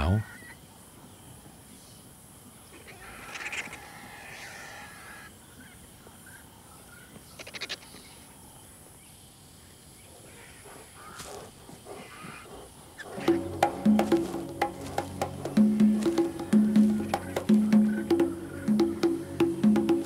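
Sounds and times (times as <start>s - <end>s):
vulture rattling call: 2.8s - 5.3s, 10.3s - 20.0s.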